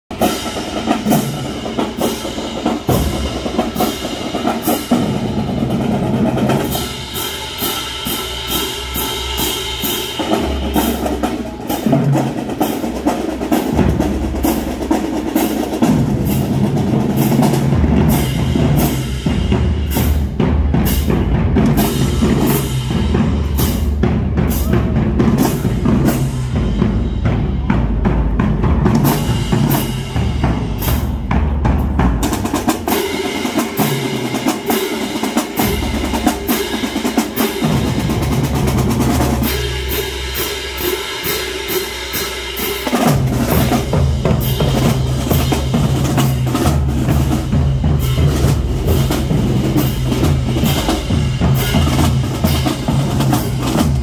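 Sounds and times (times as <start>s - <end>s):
bass drums: 0.1s - 54.0s
snare drums: 0.1s - 54.0s
crash cymbals: 6.6s - 12.1s, 32.9s - 46.4s.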